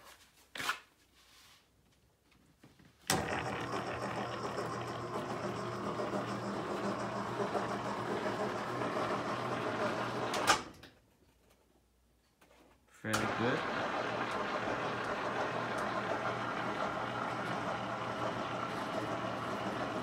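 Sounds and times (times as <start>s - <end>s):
electric motor humming: 3.1s - 10.6s, 13.2s - 20.0s.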